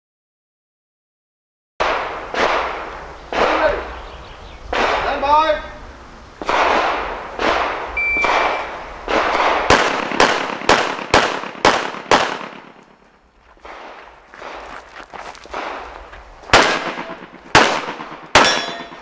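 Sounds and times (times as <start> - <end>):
pistol shots with echo: 1.8 - 3.9, 4.7 - 5.2, 6.4 - 12.8, 16.5 - 19.0.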